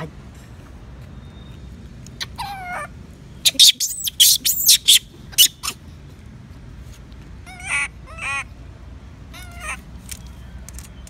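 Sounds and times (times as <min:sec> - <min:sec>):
baby monkey crying: 0:02.2 - 0:05.8, 0:07.4 - 0:08.5, 0:09.3 - 0:09.8.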